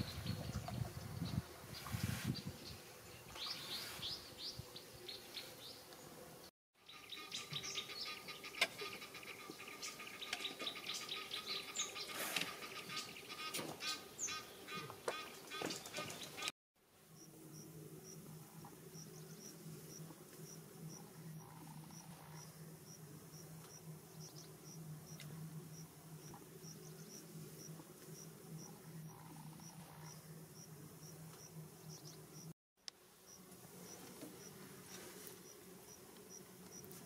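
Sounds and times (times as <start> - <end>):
faint insect chirping: 17.0 - 37.0.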